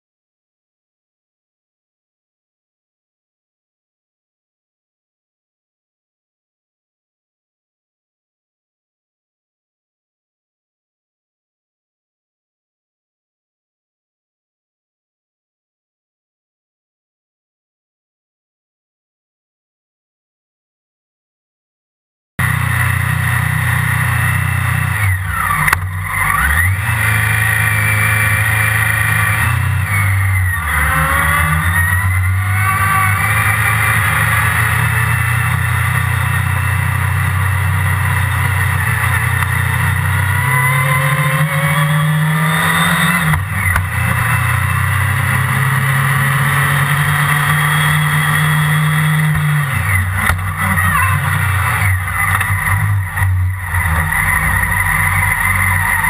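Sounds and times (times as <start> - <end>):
racing car engine revving: 22.4 - 56.0.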